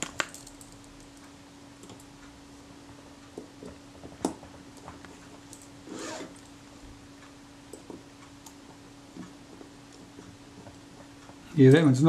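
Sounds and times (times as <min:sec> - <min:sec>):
screw scraping metal: 0:05.9 - 0:06.4.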